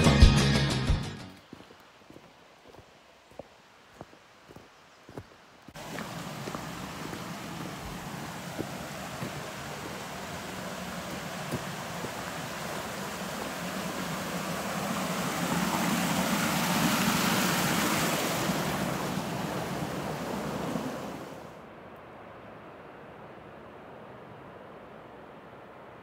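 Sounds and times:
creek splashing over rocks: 1.4 - 21.6.

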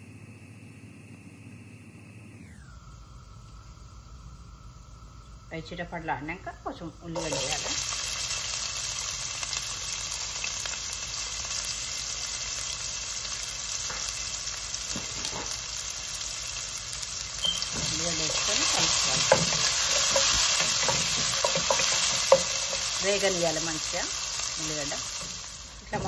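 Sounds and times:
onions sizzling in hot oil: 4.1 - 26.0
wooden spatula scraping pot: 17.7 - 24.0.

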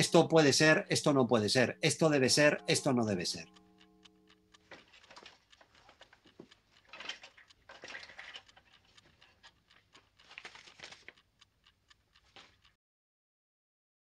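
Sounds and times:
alarm clock ticking: 0.0 - 12.8.

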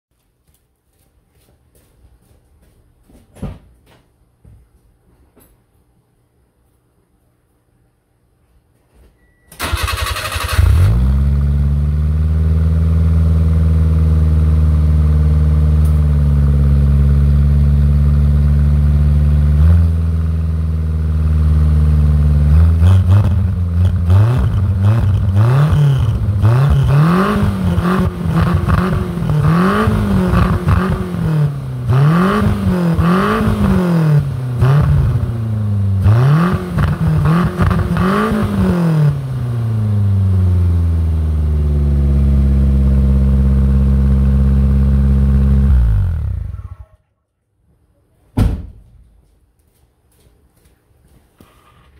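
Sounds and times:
car engine idling and revving: 10.4 - 46.7.

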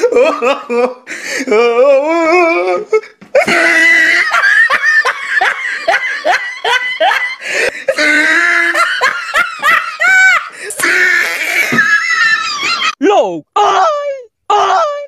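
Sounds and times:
person laughing heartily: 0.0 - 1.7, 2.7 - 13.0.

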